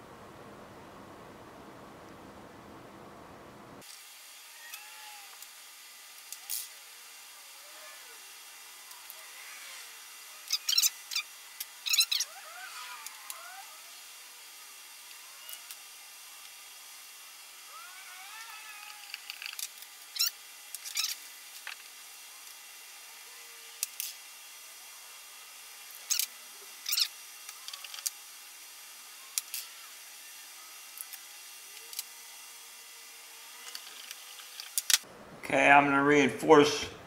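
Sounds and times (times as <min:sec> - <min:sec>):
faint steady hiss: 0:00.0 - 0:37.0.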